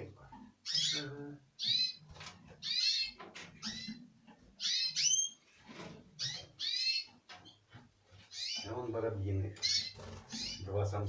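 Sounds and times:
small cage birds chirping: 0.0 - 11.0.

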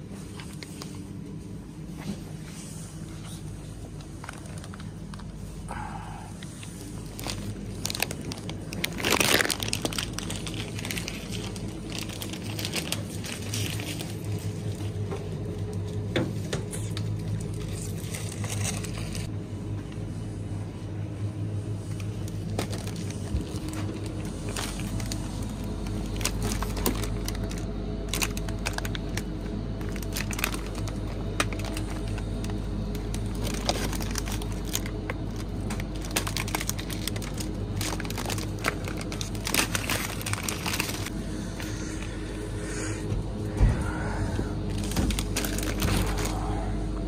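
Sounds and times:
refrigerator low hum: 0.0 - 47.0
plastic snack bag crinkling: 4.0 - 5.3, 6.6 - 14.8, 17.0 - 19.3, 21.9 - 41.2, 44.7 - 46.6.

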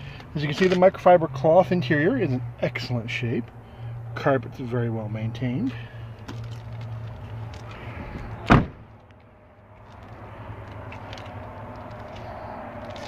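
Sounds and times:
car door shutting: 8.2 - 8.9.

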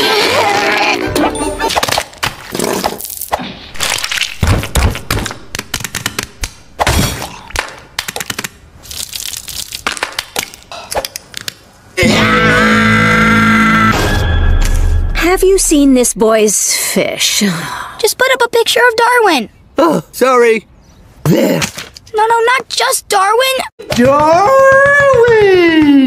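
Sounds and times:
food cracking and crunching: 1.7 - 5.0, 8.0 - 11.6.

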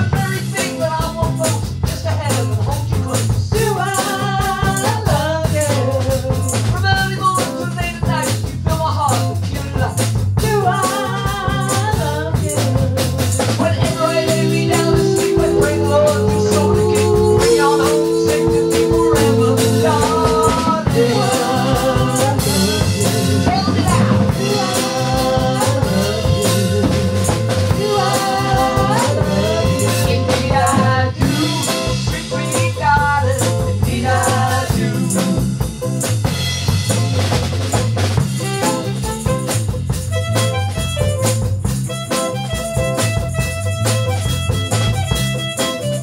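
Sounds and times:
woman singing: 0.0 - 35.5
drum kit beat: 0.0 - 46.0
electric bass: 0.0 - 46.0
saxophone: 13.6 - 31.6, 38.3 - 46.0.

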